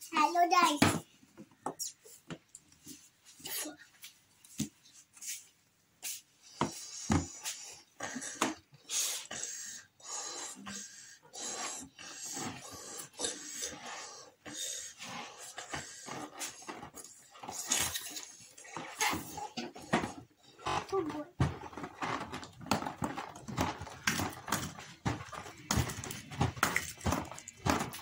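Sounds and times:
breathy puffs into balloons: 0:06.0 - 0:28.0.

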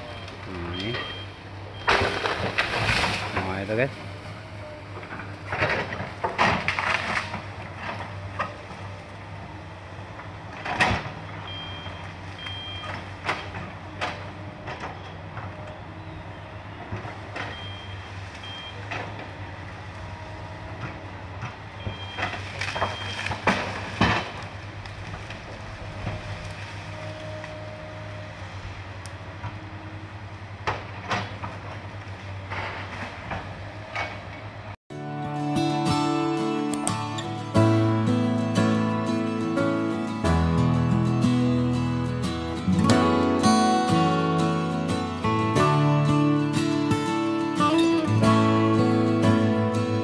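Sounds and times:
excavator diesel engine running: 0:00.0 - 0:50.0
vegetation cracking and knocking: 0:01.8 - 0:03.6, 0:05.1 - 0:08.6, 0:20.8 - 0:26.8.

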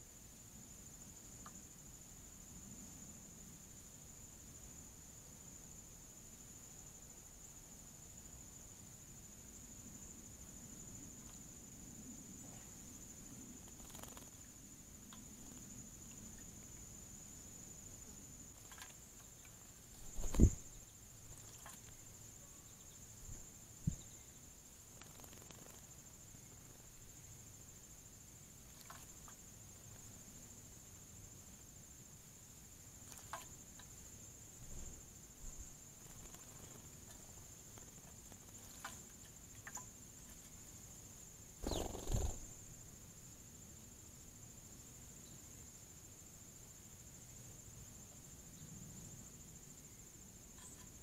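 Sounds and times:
high-pitched insect trill: 0:00.0 - 0:51.0
faint water splashing ticks: 0:01.4 - 0:01.6, 0:13.6 - 0:17.0, 0:17.9 - 0:24.2, 0:24.9 - 0:26.9, 0:28.6 - 0:30.2, 0:33.0 - 0:35.0, 0:35.6 - 0:42.6, 0:50.5 - 0:51.0
bird wings whirring: 0:13.7 - 0:14.4, 0:19.9 - 0:21.9, 0:25.0 - 0:26.0, 0:41.6 - 0:42.6.

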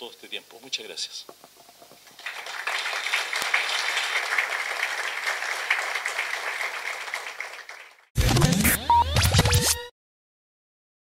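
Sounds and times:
audience applauding: 0:02.1 - 0:08.1.

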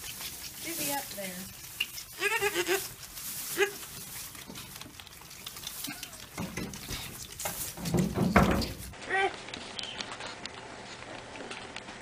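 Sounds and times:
rustling and sucking: 0:00.0 - 0:09.0
goat kid bleating: 0:02.0 - 0:04.0, 0:05.8 - 0:06.4
muffled bumps: 0:06.4 - 0:09.0.

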